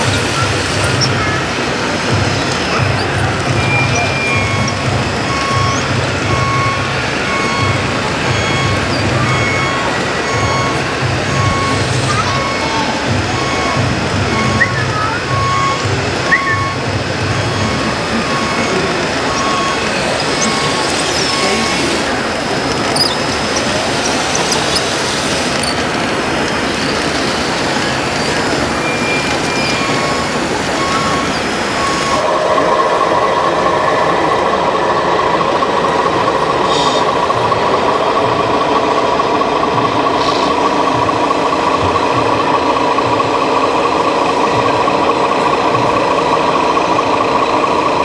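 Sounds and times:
simulated diesel engine: 0.0s - 48.0s
short high electronic tones: 2.6s - 12.8s, 13.4s - 22.2s.

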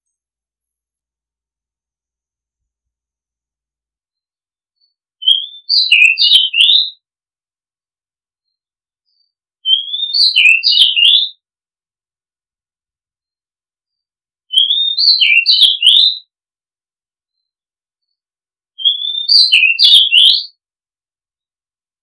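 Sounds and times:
bird singing whistled phrase: 5.2s - 7.0s, 9.6s - 11.4s, 14.5s - 16.3s, 18.8s - 20.6s.

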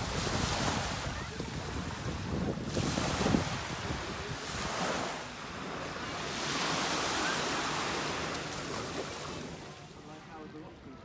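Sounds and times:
wind rumble on microphone: 0.0s - 6.4s
small waves breaking: 0.0s - 10.2s.

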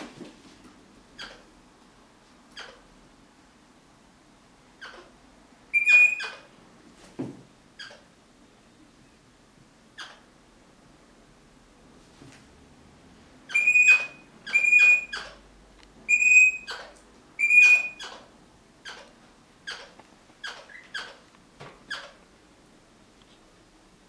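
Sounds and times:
parrot harsh chatter: 5.7s - 6.5s, 13.5s - 15.4s, 16.1s - 21.2s
parrot shrill calls: 5.7s - 6.5s, 13.5s - 15.4s, 16.1s - 21.2s.

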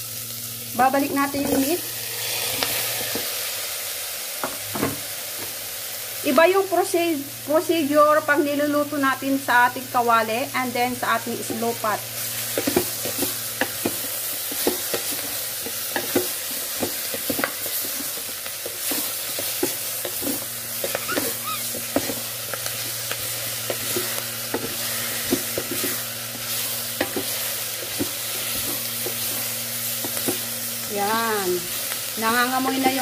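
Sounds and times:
meat sizzling in a pot: 0.0s - 33.0s
wooden spoon scraping a pot: 17.0s - 30.4s.

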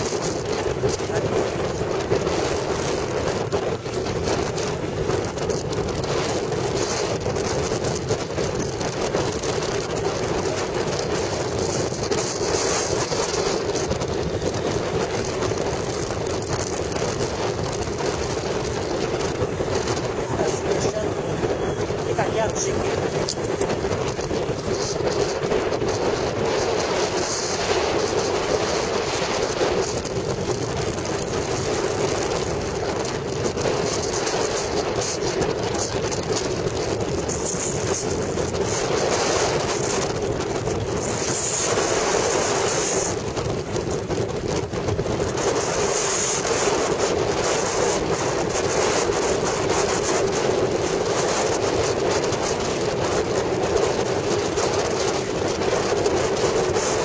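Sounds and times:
motorcycle engine drone: 0.0s - 57.0s
wind and road noise: 0.0s - 57.0s.

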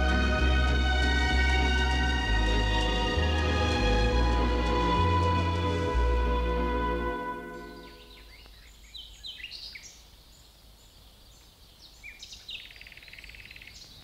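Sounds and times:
music cue: 0.0s - 8.4s
songbirds chirping: 0.0s - 14.0s
bird trill: 7.0s - 10.0s, 11.8s - 14.0s.

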